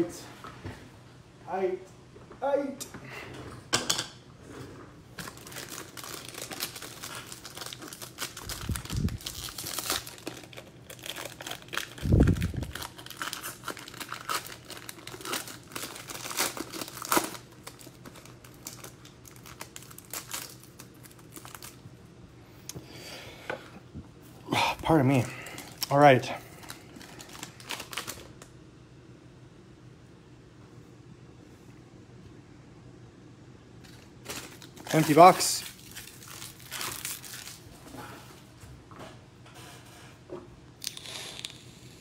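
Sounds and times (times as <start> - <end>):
foil wrapper crinkling and tearing: 5.2 - 21.8, 26.5 - 28.4, 33.9 - 37.7.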